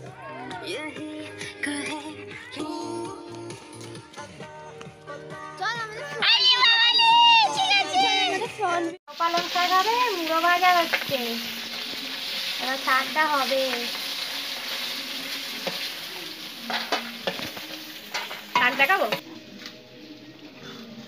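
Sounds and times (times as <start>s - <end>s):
food sizzling in hot oil: 9.1s - 20.6s.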